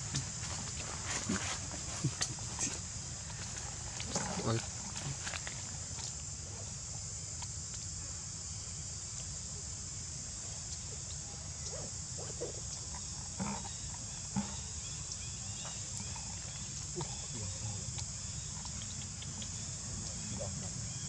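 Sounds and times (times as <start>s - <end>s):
shrill insect chorus: 0.0s - 21.0s.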